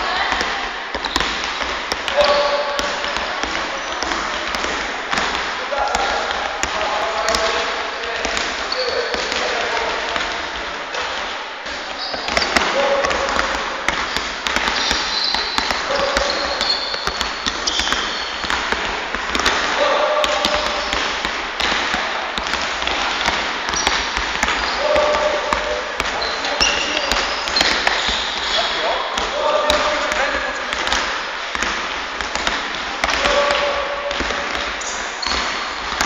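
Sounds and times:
basketball dribbling on hardwood floor: 0:00.1 - 0:36.0
shoes squeaking on court: 0:00.9 - 0:04.5, 0:08.6 - 0:09.6, 0:11.7 - 0:18.8, 0:19.4 - 0:21.2, 0:23.2 - 0:31.0, 0:34.7 - 0:36.0.

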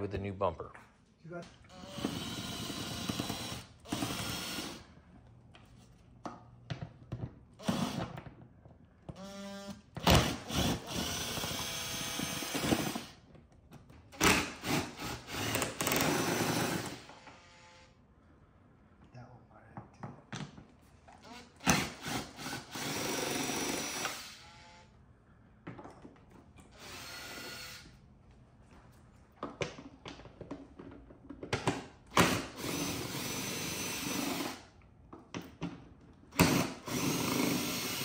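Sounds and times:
cordless drill spinning: 0:01.7 - 0:04.8, 0:09.2 - 0:13.2, 0:14.2 - 0:17.9, 0:21.2 - 0:24.9, 0:26.7 - 0:27.9, 0:32.2 - 0:34.7, 0:36.4 - 0:38.0.

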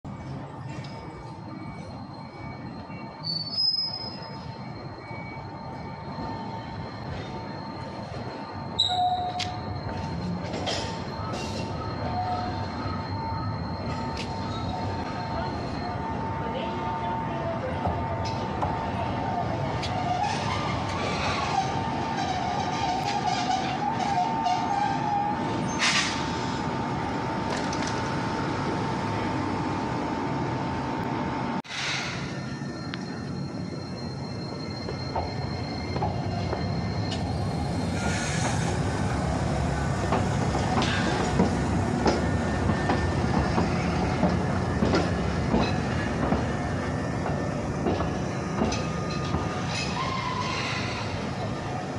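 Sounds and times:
electric tram whine: 0:00.0 - 0:51.9
wheels knocking on track: 0:40.0 - 0:50.0.

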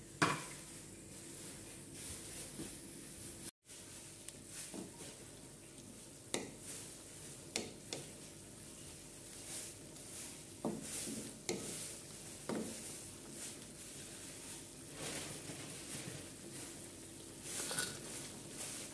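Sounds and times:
wooden spatula knocking wok: 0:06.3 - 0:06.6, 0:07.5 - 0:08.2, 0:10.6 - 0:13.4.

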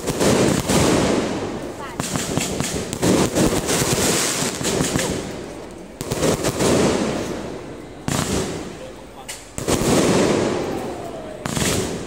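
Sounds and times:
fireworks bangs and crackling: 0:00.0 - 0:12.0.

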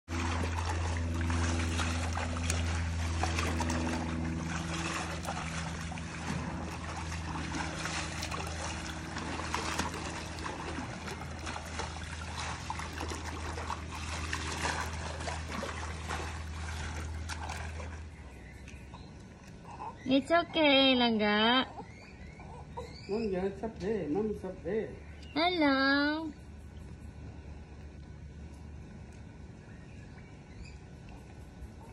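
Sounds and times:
pool water splashing and sloshing: 0:00.1 - 0:31.9
steady low hum: 0:00.1 - 0:31.9.

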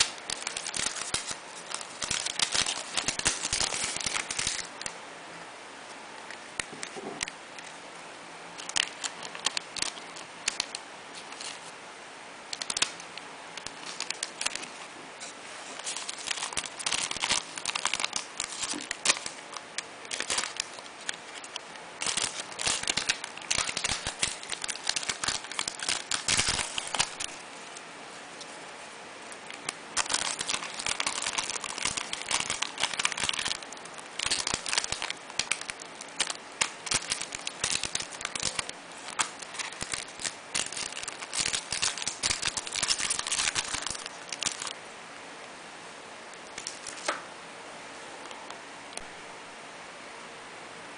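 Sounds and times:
plastic bag crinkling: 0:00.0 - 0:04.9, 0:08.6 - 0:11.7, 0:12.5 - 0:13.0, 0:13.6 - 0:14.8, 0:15.6 - 0:27.8, 0:29.4 - 0:44.8, 0:46.4 - 0:47.2.

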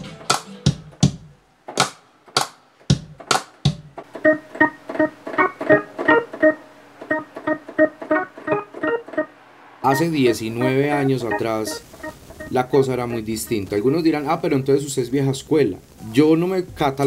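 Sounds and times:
keyboard playing repeated chords: 0:04.1 - 0:13.6.

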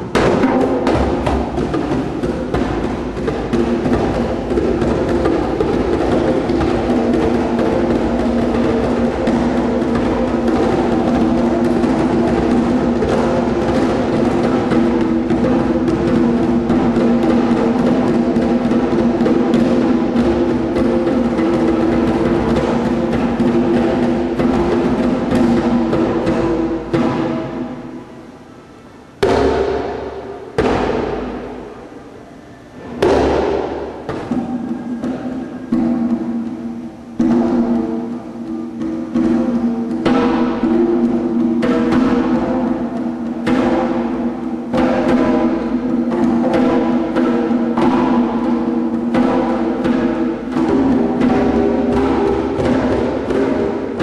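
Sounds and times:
djembe hand drumming: 0:00.0 - 0:28.4, 0:29.2 - 0:31.9, 0:32.8 - 0:54.0
loud ringing drum strikes: 0:00.0 - 0:28.4, 0:29.2 - 0:32.0, 0:32.8 - 0:54.0.

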